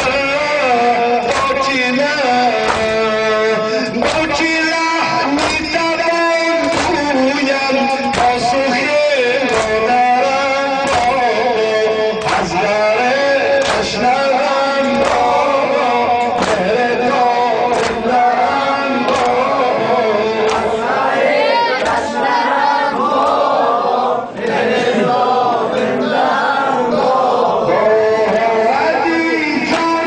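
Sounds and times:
man chanting a mourning song: 0:00.0 - 0:20.8, 0:27.1 - 0:30.0
sharp rhythmic beat: 0:00.0 - 0:30.0
voices singing in chorus: 0:00.0 - 0:30.0.

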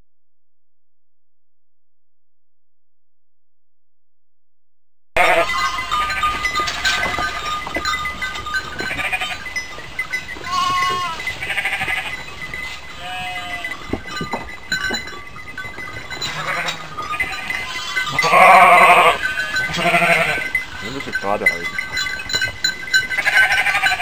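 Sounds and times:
sheep bleating: 0:05.2 - 0:07.1, 0:08.8 - 0:09.4, 0:10.4 - 0:13.8, 0:16.2 - 0:20.9, 0:23.2 - 0:24.0.

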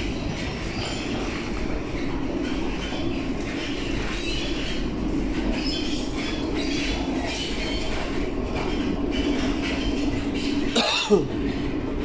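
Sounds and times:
train wheels rumbling on track: 0:00.0 - 0:12.0.

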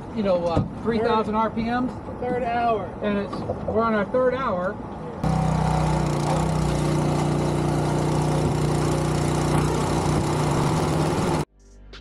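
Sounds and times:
boat engine running: 0:05.2 - 0:11.5.

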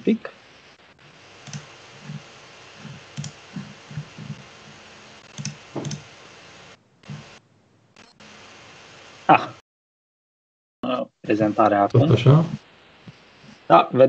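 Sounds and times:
faint steady hiss: 0:00.0 - 0:09.6, 0:10.8 - 0:14.0
keyboard and mouse clicks: 0:03.1 - 0:03.4, 0:05.3 - 0:06.1.

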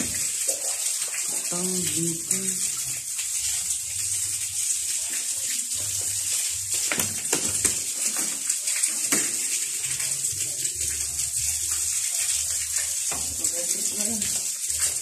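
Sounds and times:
running water hiss: 0:00.0 - 0:15.0.

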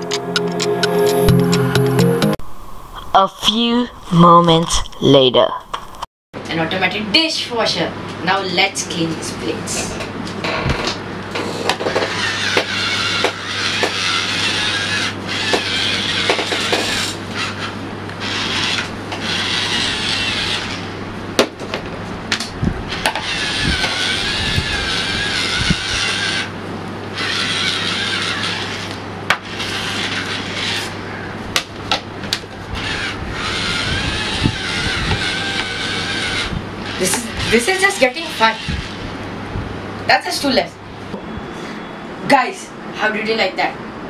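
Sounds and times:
motor scrubbing a plate: 0:12.0 - 0:20.9, 0:22.9 - 0:26.5, 0:27.1 - 0:30.9, 0:32.7 - 0:39.0.

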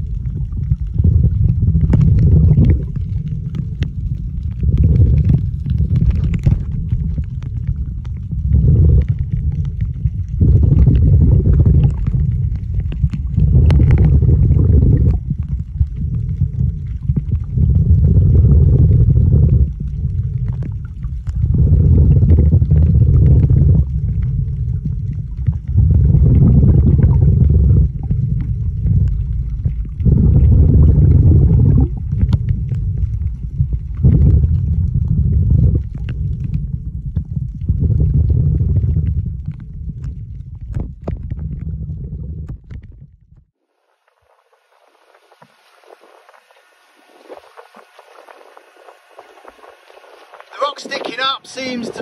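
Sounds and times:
scuba regulator breathing bubbles: 0:08.4 - 0:09.5, 0:13.4 - 0:15.2.

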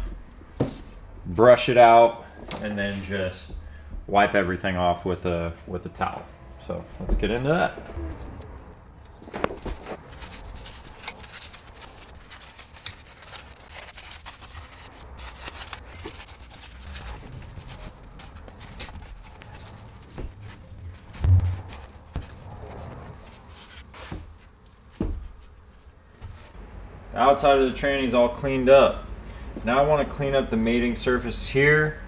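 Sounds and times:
loud thump: 0:21.2 - 0:21.8.

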